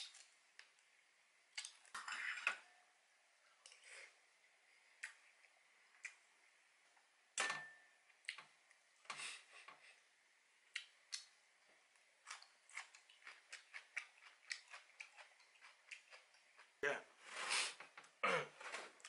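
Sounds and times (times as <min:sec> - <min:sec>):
food being chewed: 0:01.5 - 0:02.0, 0:04.9 - 0:06.3, 0:10.7 - 0:16.8.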